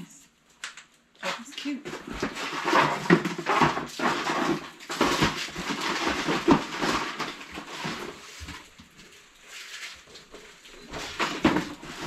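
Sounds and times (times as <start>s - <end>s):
things rustling and knocking in a box: 1.2s - 12.0s.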